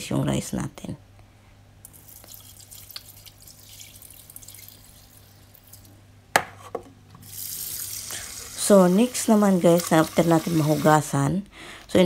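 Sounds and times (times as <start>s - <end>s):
water trickling and dripping: 1.9s - 6.0s.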